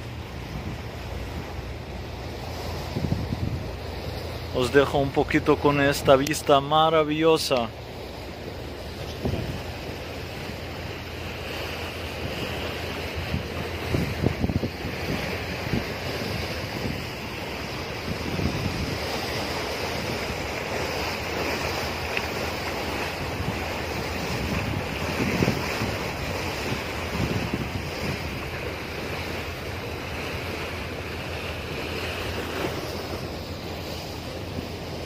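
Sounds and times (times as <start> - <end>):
wind buffeting microphone: 0.0 - 6.6, 7.7 - 35.0
water rushing along boat hull: 0.0 - 35.0.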